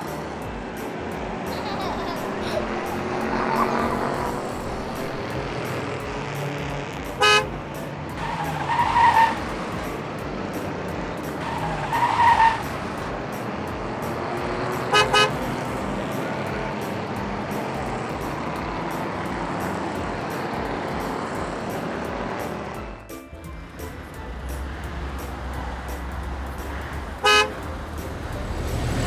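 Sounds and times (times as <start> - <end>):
car horn toots: 7.2 - 7.6, 14.8 - 15.5, 27.2 - 27.7.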